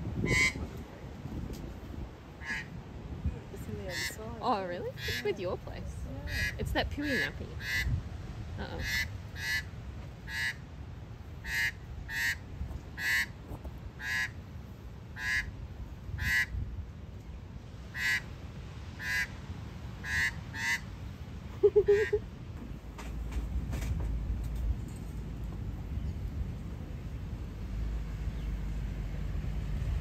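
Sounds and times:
magpie harsh alarm calls: 0.2 - 0.6, 2.4 - 2.8, 3.9 - 4.2, 4.9 - 5.4, 6.2 - 8.0, 8.7 - 10.6, 11.4 - 12.4, 13.0 - 13.4, 14.0 - 14.4, 15.2 - 15.5, 16.1 - 16.5, 17.9 - 18.3, 19.0 - 19.4, 20.0 - 20.9.

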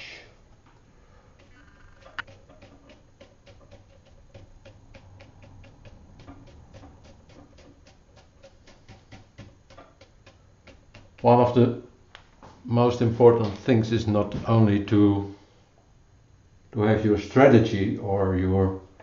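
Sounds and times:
brush dabbing on wet paper: 1.4 - 11.6.

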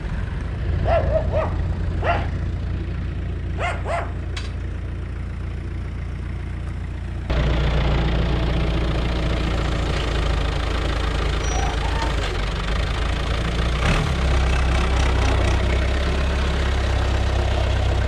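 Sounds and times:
diesel tractor engine idling: 0.0 - 18.0
tractor diesel engine running: 0.0 - 18.0
dog barking: 0.8 - 2.4, 3.6 - 4.2.

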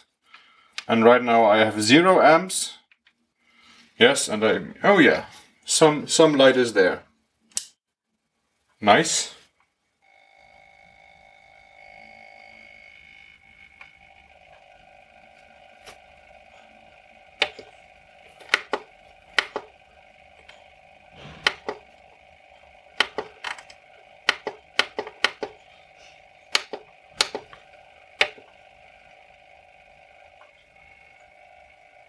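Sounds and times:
faint high whine: 8.2 - 32.0
power supply control clicks: 17.2 - 22.0, 22.9 - 25.7, 26.5 - 28.6.

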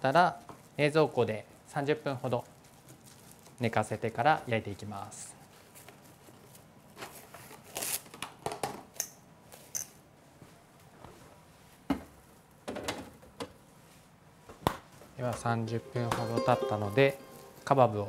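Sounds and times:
plastic wrap crinkling: 0.6 - 8.1.

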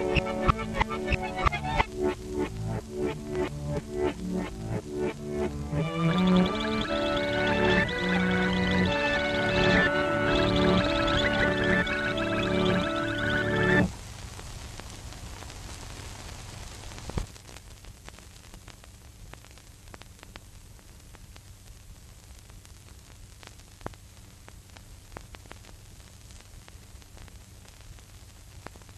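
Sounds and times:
music: 0.0 - 13.9
old film soundtrack hiss and crackle: 0.0 - 28.9.

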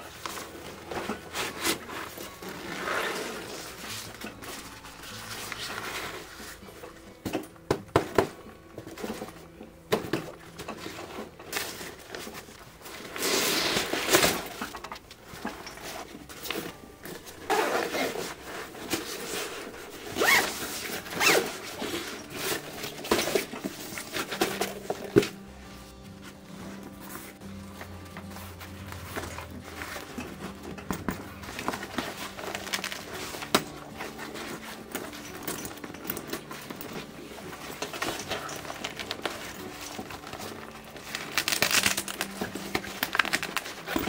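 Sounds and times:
zippers being pulled open: 1.4 - 4.1, 17.4 - 24.8
fabric rustling: 10.8 - 44.0.

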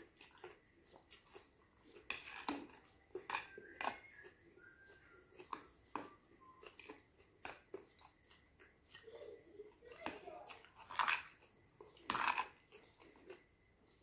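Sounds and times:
fork scraping plastic container: 12.0 - 13.1.

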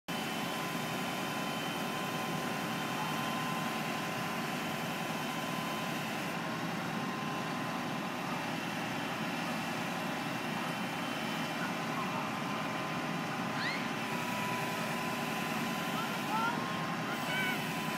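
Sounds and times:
truck engine running: 0.1 - 17.9.

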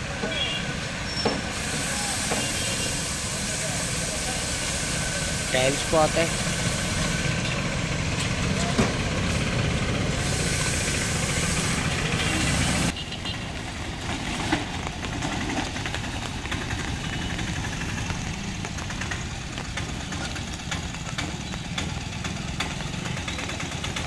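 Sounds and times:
loud hiss: 0.9 - 7.7, 9.2 - 12.9.

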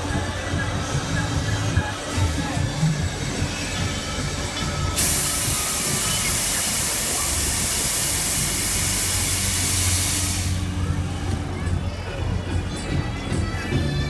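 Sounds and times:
compressed air hissing: 5.0 - 10.7.

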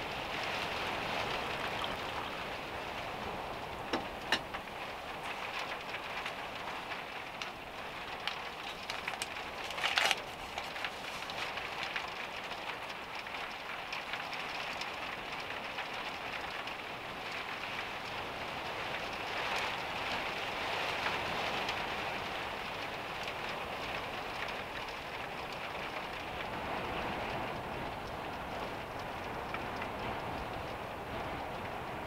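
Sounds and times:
heavy rain on a roof: 0.0 - 32.0
short rustle: 8.6 - 11.6.

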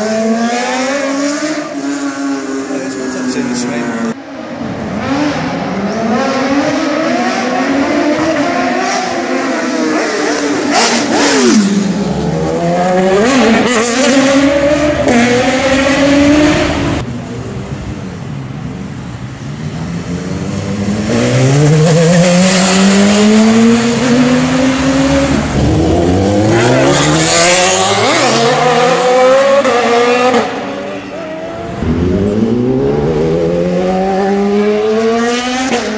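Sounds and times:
motorcycle engine revving: 5.0 - 17.0, 20.1 - 35.9.

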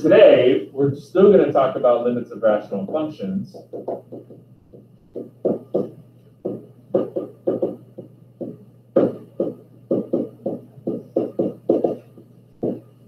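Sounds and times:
steady low hum: 0.0 - 13.0
pen tapping on whiteboard: 2.8 - 13.0.

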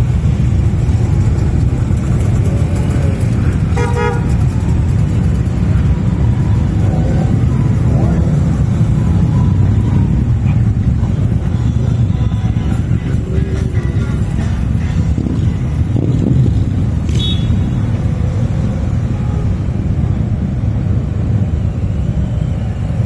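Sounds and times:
motorcycles rumbling past: 0.0 - 11.5
horn toot: 3.7 - 4.4.

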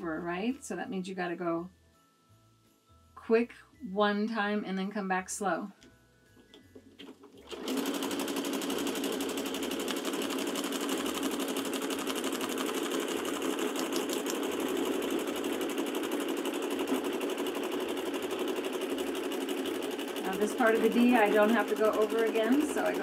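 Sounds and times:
sewing machine running: 7.0 - 23.0.

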